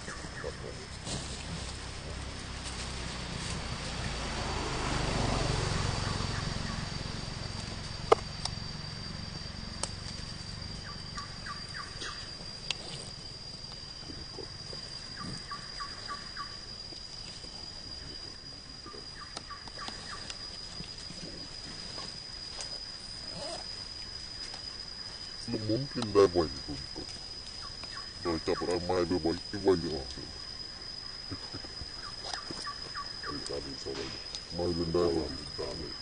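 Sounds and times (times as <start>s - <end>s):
high-pitched whine: 0.0s - 36.0s.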